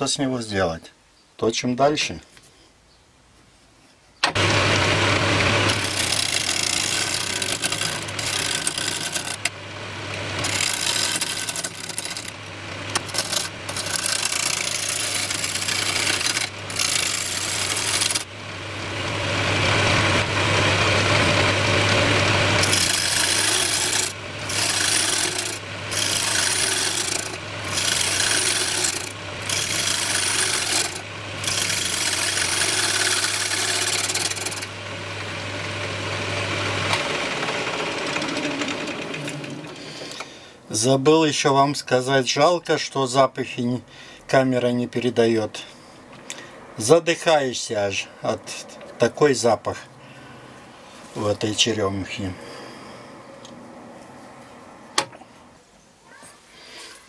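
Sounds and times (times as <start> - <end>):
turning tool shaving wood: 4.4 - 40.2
wood lathe motor hum: 4.4 - 40.4.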